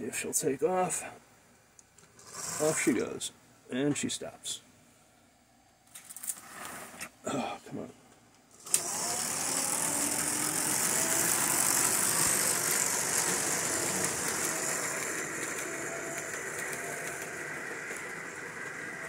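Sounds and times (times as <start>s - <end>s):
toy train wheels rumbling on rail: 2.2s - 3.2s, 8.6s - 19.0s
faint electric motor whine: 8.5s - 19.0s.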